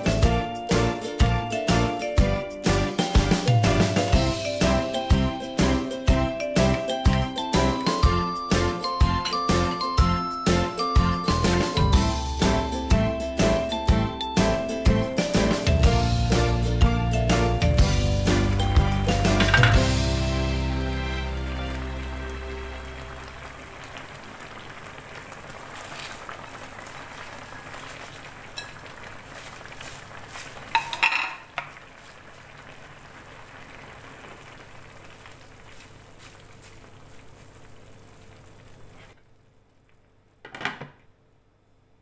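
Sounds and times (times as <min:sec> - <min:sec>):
glass lid clanking: 0:09.2 - 0:09.5, 0:19.3 - 0:19.9, 0:30.8 - 0:31.5
broth bubbling in a wok: 0:21.8 - 0:39.2
leaves clattering and rustling: 0:25.5 - 0:27.0, 0:27.7 - 0:31.1, 0:35.3 - 0:38.3.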